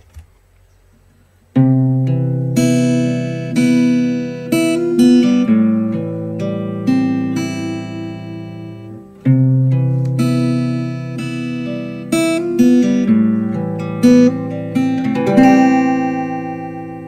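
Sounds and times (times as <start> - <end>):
acoustic guitar chords: 1.5 - 17.0.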